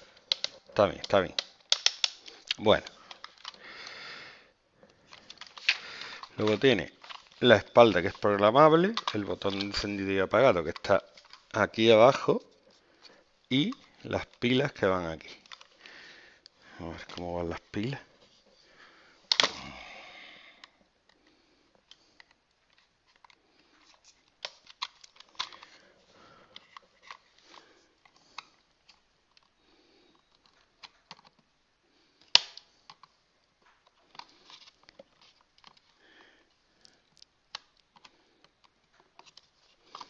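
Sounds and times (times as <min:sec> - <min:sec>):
sharp plastic click: 0:00.3 - 0:03.6, 0:32.2 - 0:33.1
small clicks and scrapes: 0:04.8 - 0:10.0, 0:20.6 - 0:31.5, 0:32.2 - 0:40.0.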